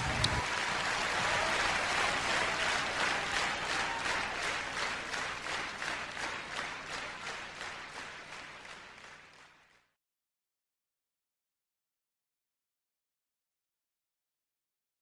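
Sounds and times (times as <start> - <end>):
applause: 0.0 - 10.0.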